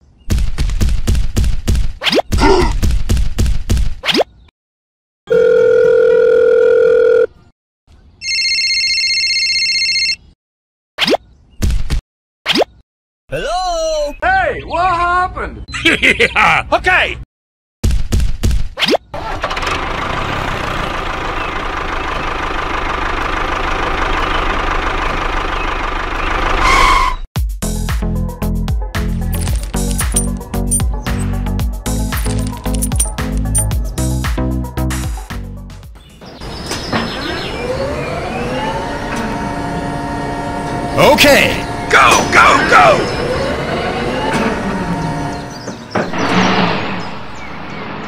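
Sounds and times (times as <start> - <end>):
steady telephone tone: 5.3 - 7.3, 8.2 - 10.2
electronic phone ring warbling: 8.2 - 10.2.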